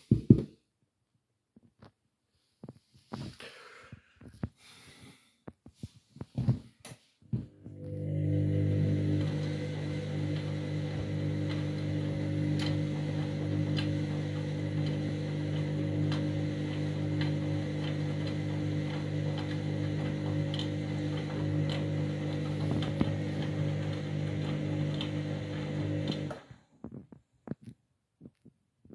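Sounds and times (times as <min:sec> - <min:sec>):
washing machine drum motor humming: 0:07.5 - 0:26.6.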